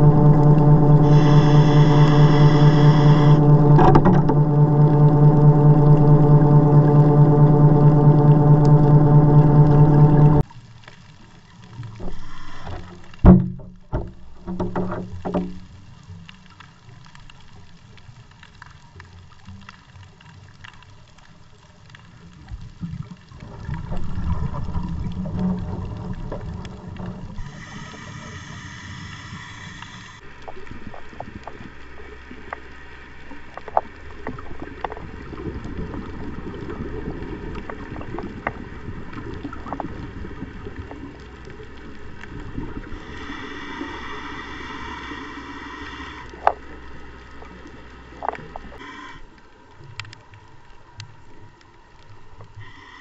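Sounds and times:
regulator bubbling exhales: 0.0 - 10.4, 23.4 - 31.0, 42.0 - 46.7
regulator hissing inhales: 1.0 - 3.8, 12.1 - 13.1, 27.4 - 30.2, 42.9 - 46.7, 48.8 - 49.4, 52.6 - 53.0.

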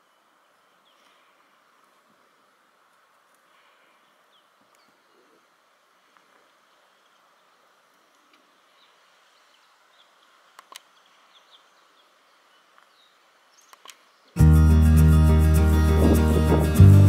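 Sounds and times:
sharp clicks: 10.5 - 10.9, 13.7 - 14.1
loud music: 14.4 - 17.0.

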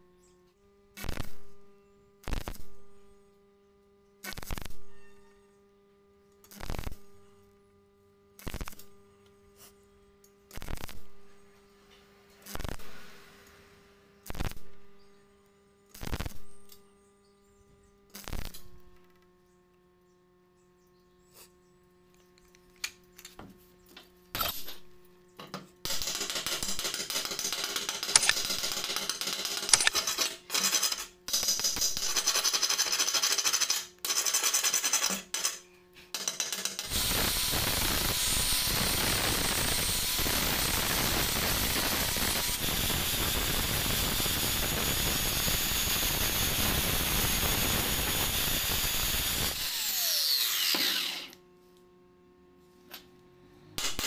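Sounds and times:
arc welding crackling: 0.8 - 1.6, 2.2 - 2.9, 4.2 - 4.8, 6.4 - 7.6, 8.2 - 9.8, 10.4 - 11.3, 12.3 - 13.5, 14.1 - 16.9, 18.0 - 19.3, 25.8 - 51.4
angle grinder grinding: 26.0 - 31.9, 36.2 - 51.4.

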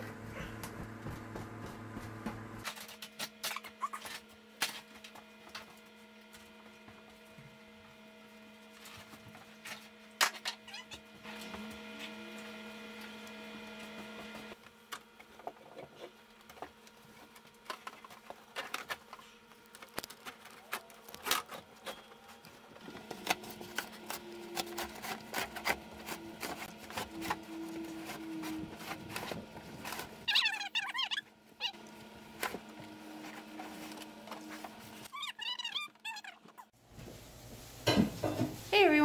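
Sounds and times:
steady hum: 0.0 - 3.5, 11.1 - 30.3.

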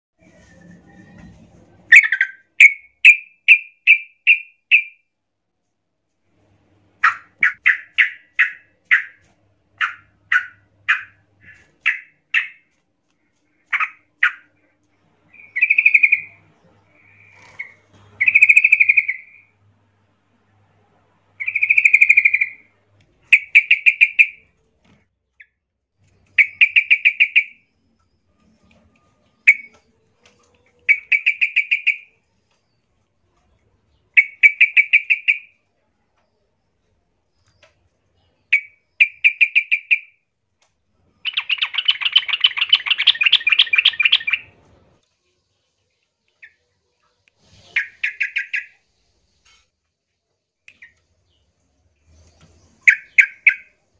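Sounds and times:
sharp bird chirps: 1.9 - 5.0, 7.0 - 12.7, 13.6 - 14.7, 15.3 - 19.5, 21.4 - 22.7, 23.3 - 24.5, 25.4 - 28.7, 29.4 - 30.0, 30.8 - 32.9, 33.9 - 35.6, 37.3 - 40.2, 41.1 - 44.6, 47.4 - 49.6, 50.7 - 53.9
bulbuls calling agitatedly: 9.8 - 12.6.

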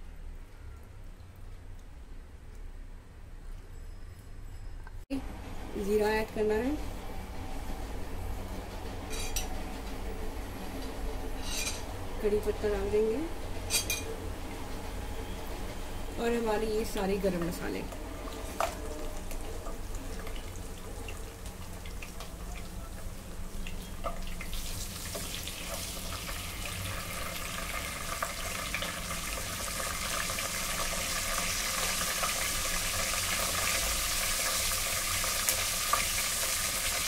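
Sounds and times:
spices sizzling in hot oil: 16.2 - 37.0.

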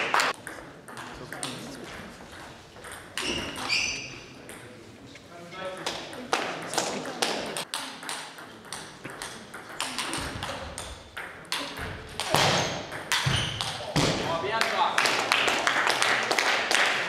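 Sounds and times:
table tennis ball clicking: 6.7 - 13.8.

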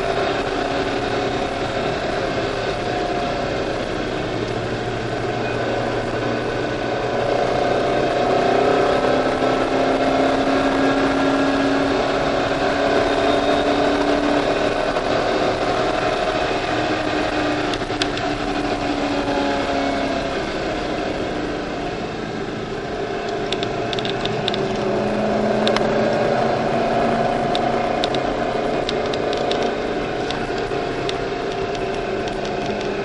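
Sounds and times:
car engine running at speed: 0.0 - 33.0.

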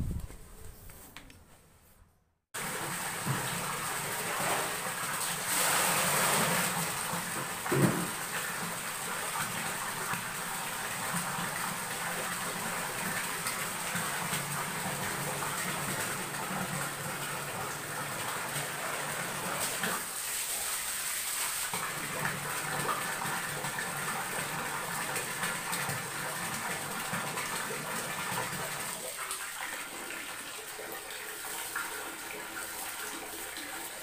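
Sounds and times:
water splashing into plastic drum: 2.6 - 20.1
thump: 7.7 - 8.1.

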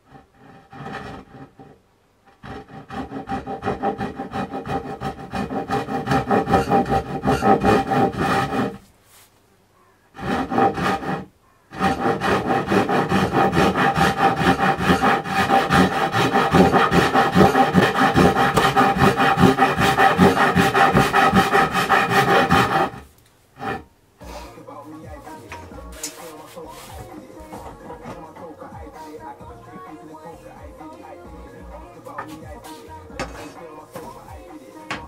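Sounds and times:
hand tool rasping on wood: 0.0 - 8.8, 10.2 - 23.9, 25.4 - 30.2.

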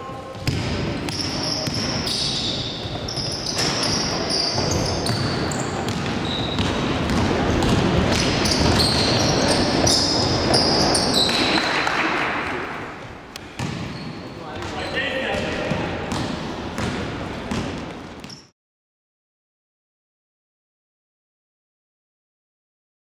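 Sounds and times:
sneakers squeaking: 0.0 - 18.5
basketball bouncing on floor: 0.4 - 2.0, 3.0 - 11.7, 13.5 - 14.0, 15.4 - 18.4.

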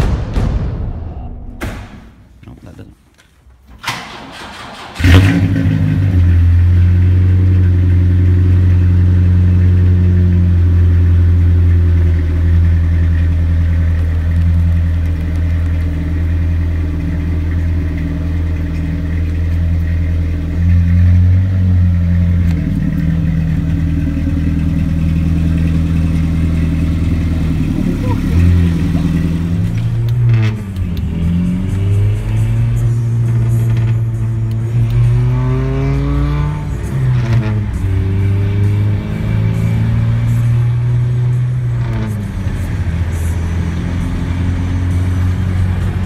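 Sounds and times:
truck engine idling: 6.4 - 34.6.

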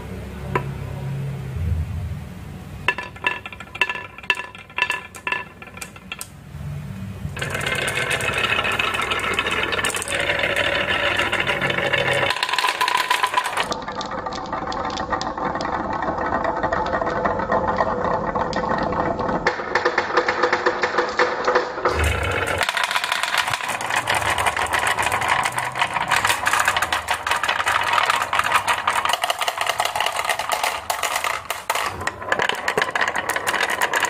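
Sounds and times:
marbles clattering down wooden slope: 2.9 - 6.4, 7.4 - 34.0.

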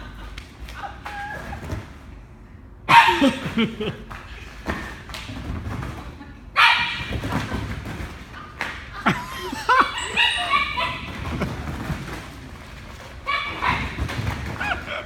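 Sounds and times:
dog barking: 2.9 - 3.4, 6.6 - 7.1.

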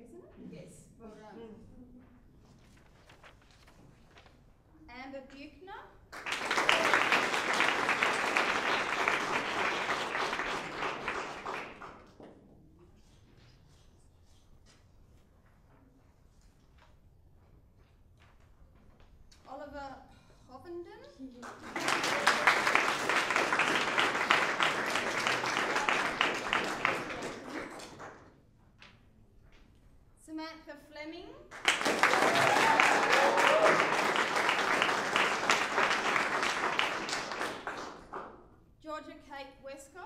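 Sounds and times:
audience clapping: 6.1 - 12.3, 21.4 - 28.4, 31.5 - 38.5.

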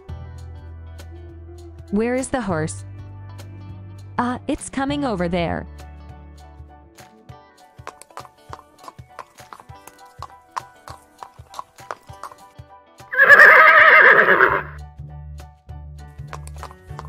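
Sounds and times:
horse hooves clip-clopping: 7.8 - 14.8, 16.2 - 17.0
horse neighing: 13.1 - 14.8.

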